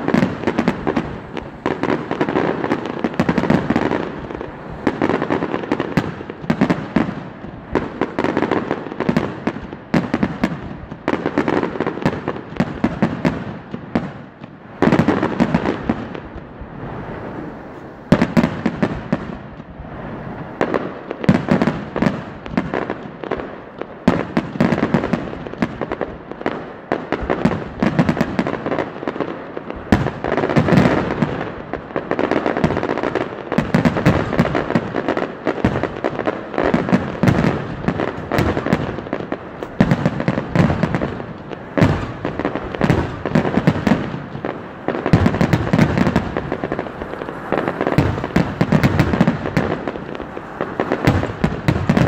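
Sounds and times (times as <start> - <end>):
fireworks shells bursting: 35.6 - 52.0.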